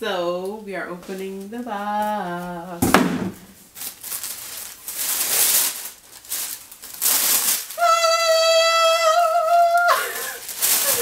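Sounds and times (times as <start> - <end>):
tissue paper rustling: 1.0 - 11.0
woman squealing: 7.8 - 11.0.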